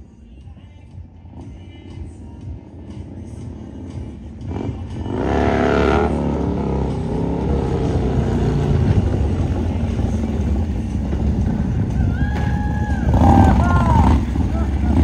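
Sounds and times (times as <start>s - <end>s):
motorcycle engine revving: 1.3s - 12.0s, 13.0s - 15.0s.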